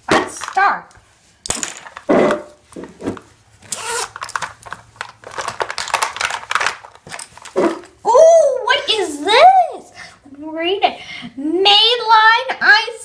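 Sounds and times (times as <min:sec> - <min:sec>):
items rustling and clicking: 0:00.1 - 0:08.0
zipper being pulled open: 0:03.7 - 0:04.4.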